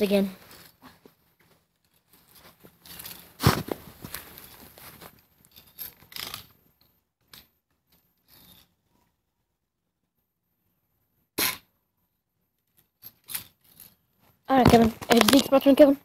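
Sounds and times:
rustling and handling clicks: 0.4s - 8.7s, 12.7s - 15.9s
clothing brushing microphone: 2.3s - 5.2s.

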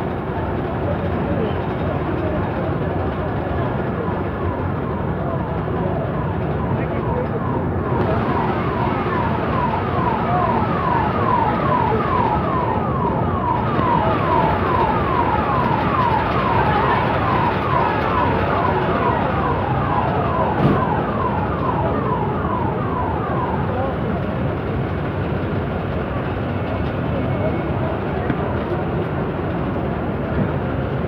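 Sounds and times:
crowd noise: 0.0s - 31.0s
siren yelping: 4.0s - 24.2s.

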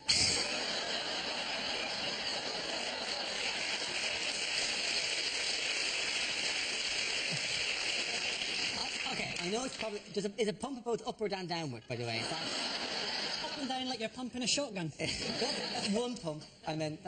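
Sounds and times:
audience laughing: 0.0s - 5.2s, 12.0s - 13.8s, 15.1s - 16.0s
audience applauding: 0.3s - 10.1s.

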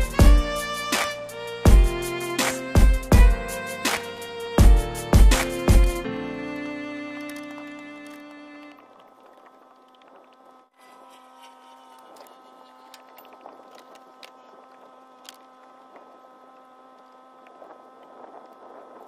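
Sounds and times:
steady hum: 0.0s - 19.0s.

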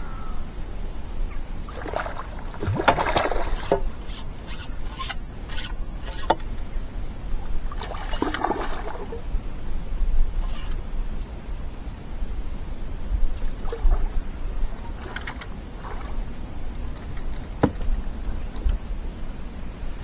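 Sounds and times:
scratchy rubbing noises: 3.4s - 6.4s, 10.4s - 10.8s
fishing reel winding: 3.6s - 6.4s, 10.4s - 10.8s.

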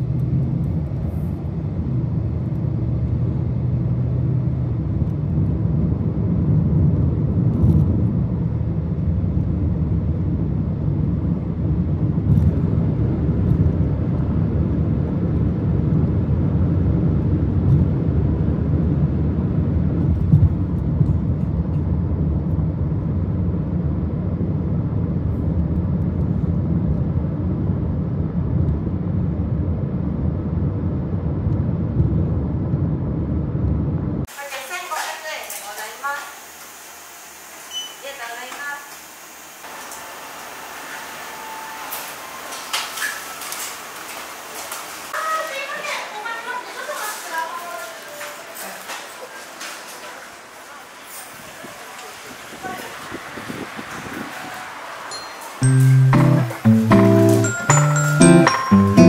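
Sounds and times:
car road and engine rumble: 0.0s - 34.4s.

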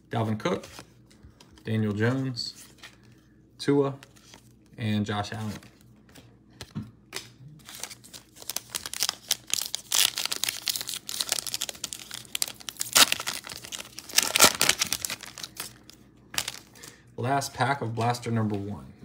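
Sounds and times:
plastic wrapper tearing and crinkling: 7.2s - 16.9s.

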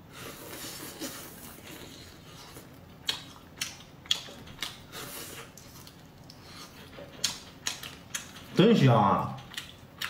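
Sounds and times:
soft munching: 0.1s - 8.6s.

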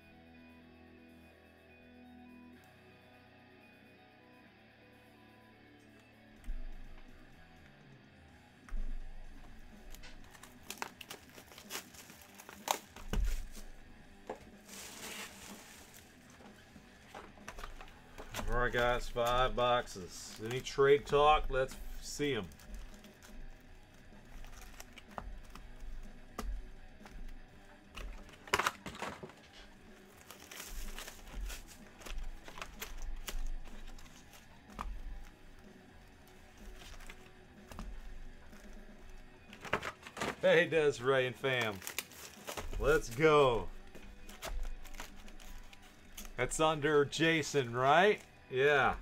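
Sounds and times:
plastic wrapping crinkling: 9.8s - 13.8s, 14.5s - 19.6s, 20.3s - 27.4s, 28.0s - 40.4s, 41.4s - 46.4s.

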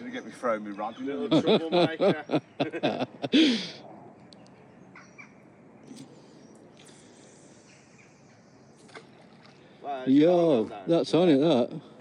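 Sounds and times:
faint high bird calls: 3.8s - 9.8s.

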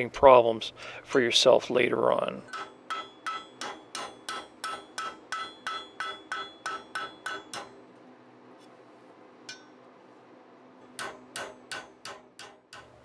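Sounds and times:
hammer striking hot metal on anvil: 2.5s - 7.8s, 9.4s - 9.8s, 10.9s - 13.0s.

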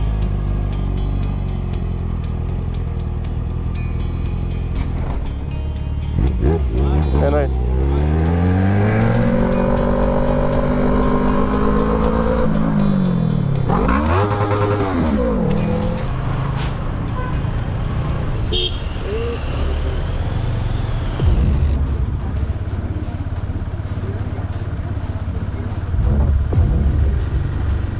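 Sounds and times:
road noise in traffic: 0.0s - 27.9s
motorcycle engine revving: 6.0s - 27.9s.

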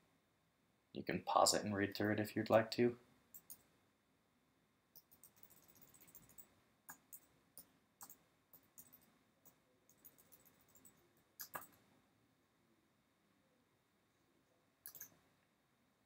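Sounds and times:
computer mouse clicks: 3.3s - 3.7s, 5.0s - 11.8s, 14.8s - 15.2s.

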